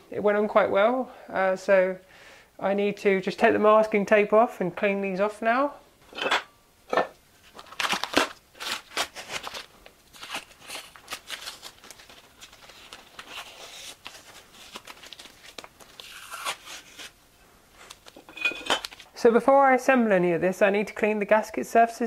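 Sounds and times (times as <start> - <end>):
masking tape ripping off: 7.6 - 17.1.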